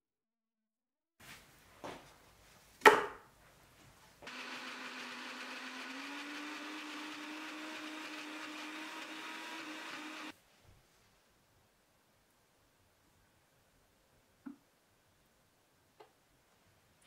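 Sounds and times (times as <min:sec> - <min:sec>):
electric blender running: 0:04.2 - 0:10.4.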